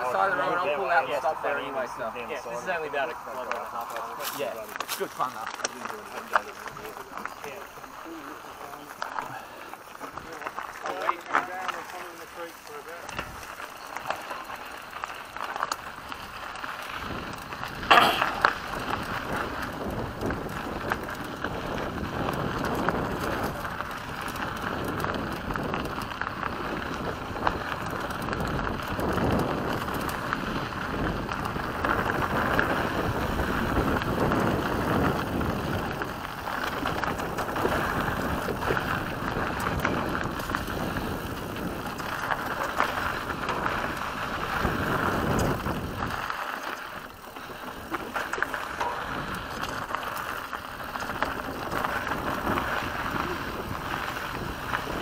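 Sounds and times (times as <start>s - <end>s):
bike rattling: 0.0s - 55.0s
tyres crunching on gravel: 0.0s - 55.0s
wind noise on microphone: 13.1s - 55.0s.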